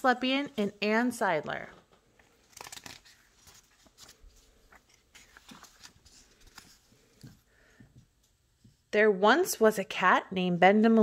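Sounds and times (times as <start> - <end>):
paper pages being turned: 2.0 - 7.5.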